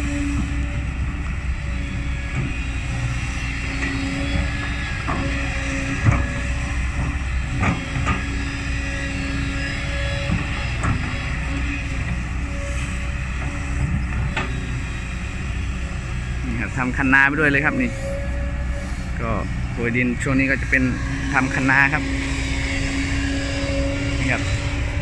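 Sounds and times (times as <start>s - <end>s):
excavator diesel engine running: 0.0s - 25.0s
hydraulic humming tone: 0.0s - 25.0s.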